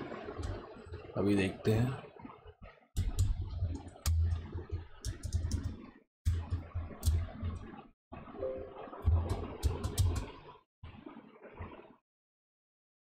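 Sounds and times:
computer keys clicking and tapping: 9.0 - 10.3.

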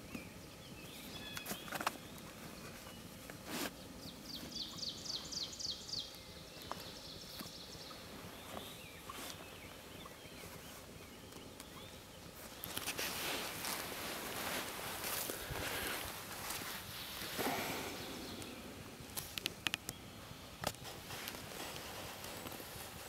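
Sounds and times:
soft rustling: 1.4 - 4.7, 6.7 - 11.6, 12.3 - 19.8, 20.6 - 23.0.

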